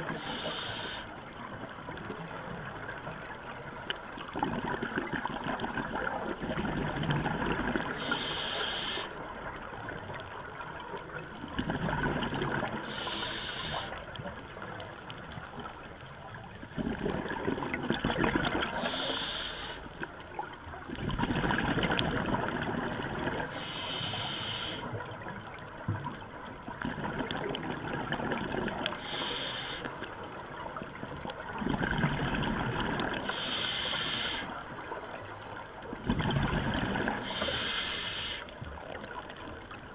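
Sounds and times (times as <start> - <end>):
exhaled air bubbling: 0.0 - 39.9
regulator hiss: 0.1 - 1.2, 7.9 - 9.2, 12.8 - 14.0, 18.8 - 19.9, 23.4 - 25.0, 28.9 - 30.8, 33.2 - 35.8, 37.2 - 38.5.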